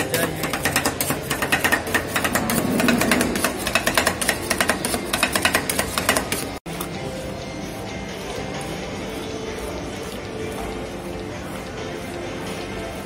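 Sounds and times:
metal spatulas clattering on steel: 0:00.0 - 0:06.6.

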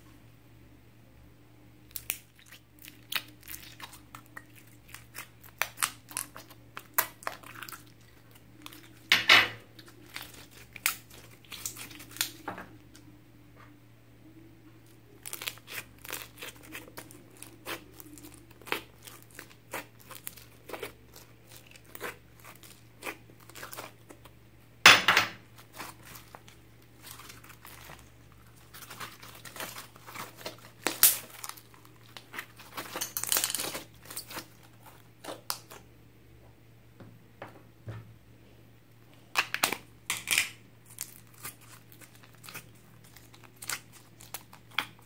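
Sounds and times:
slime squished by hand crackling: 0:15.2 - 0:24.2.

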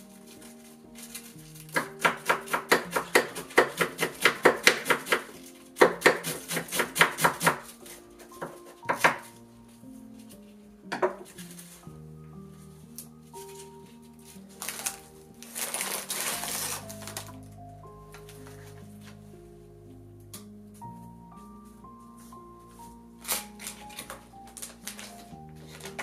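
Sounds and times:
soft background music: 0:00.0 - 0:26.0
knife cutting cabbage on board: 0:01.7 - 0:07.7.

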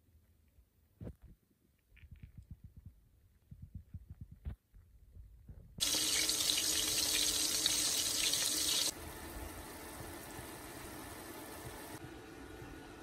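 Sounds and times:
food sizzling in a frying pan: 0:05.8 - 0:12.0.

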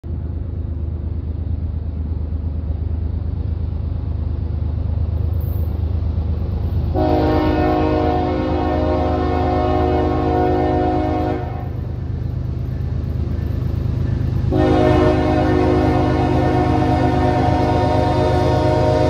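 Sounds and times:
diesel locomotive rumble: 0:00.0 - 0:19.0
locomotive horn blowing: 0:07.0 - 0:11.8, 0:14.5 - 0:19.0.

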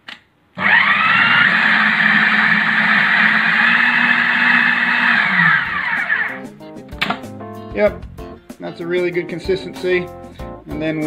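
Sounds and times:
food processor motor whine: 0:00.6 - 0:06.4.

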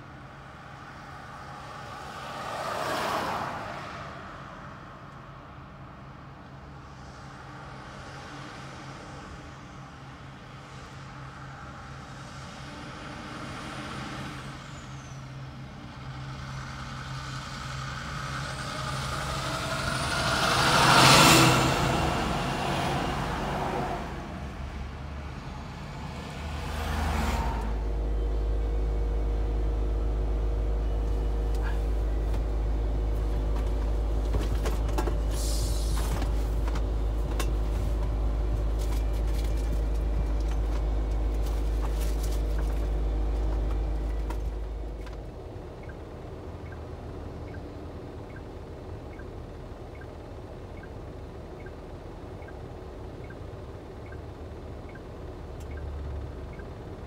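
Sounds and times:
truck passing close: 0:06.8 - 0:57.0
truck engine idling: 0:27.7 - 0:57.0.

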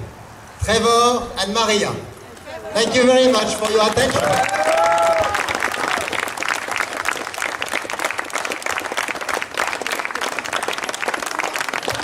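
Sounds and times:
crowd applauding: 0:03.2 - 0:12.0.

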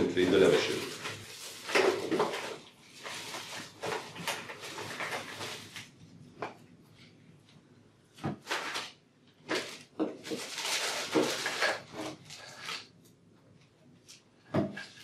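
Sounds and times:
plastic bags crinkling: 0:00.0 - 0:06.1, 0:08.4 - 0:13.0.

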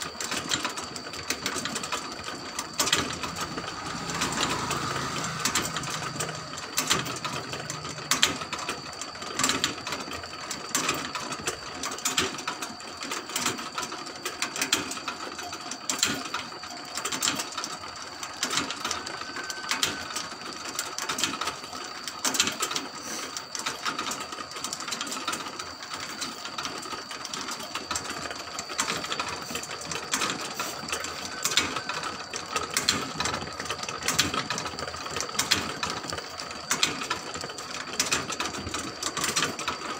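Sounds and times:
steady high tone: 0:01.0 - 0:09.3.

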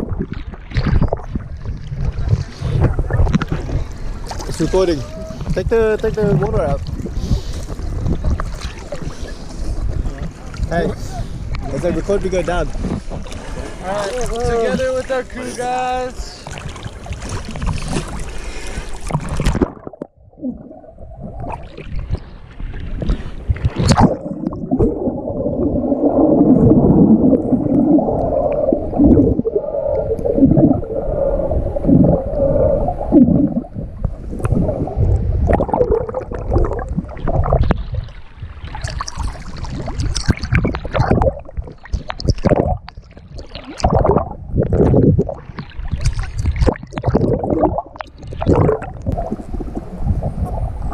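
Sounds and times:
underwater gurgle and bubbles: 0:00.0 - 0:50.9
sharp water splashes: 0:21.4 - 0:26.9, 0:34.5 - 0:49.7.

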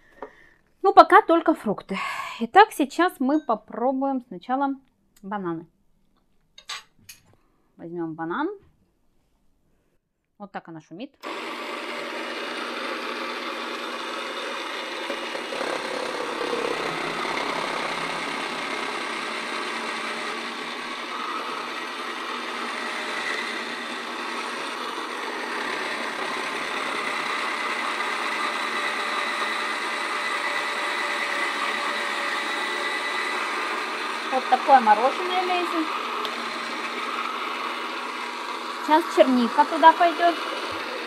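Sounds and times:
motor whirring and grinding: 0:11.2 - 0:41.0.

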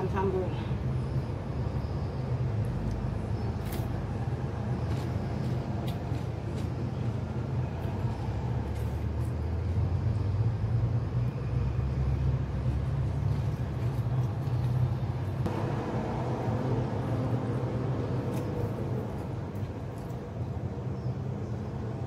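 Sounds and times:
low rumbling hum: 0:14.8 - 0:20.3.

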